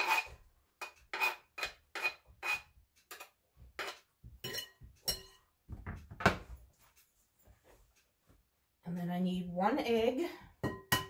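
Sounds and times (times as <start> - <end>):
knife scraping cutting board: 0.0 - 4.1.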